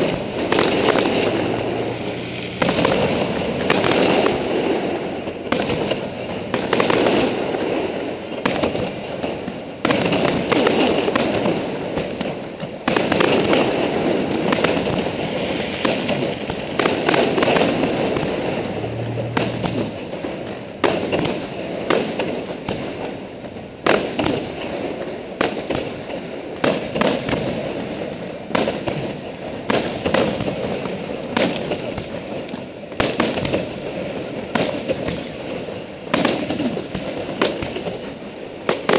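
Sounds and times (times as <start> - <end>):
firework bangs: 0.0 - 38.9
continuous rumble: 0.1 - 6.6, 13.9 - 24.6.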